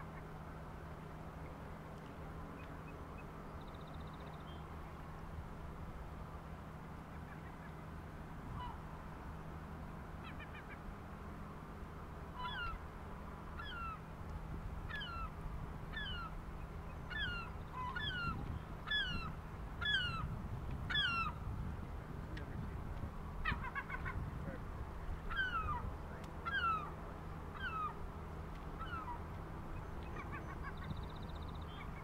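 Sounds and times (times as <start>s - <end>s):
low steady hum and rumble: 0.0s - 32.0s
gull yelping: 23.4s - 24.2s, 26.5s - 26.9s.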